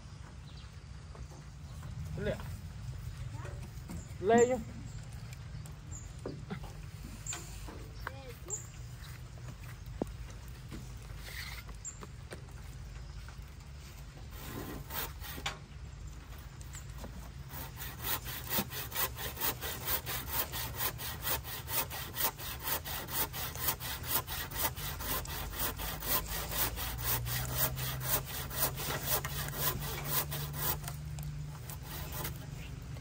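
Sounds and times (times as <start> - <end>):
rhythmic scraping strokes: 17.2 - 32.8.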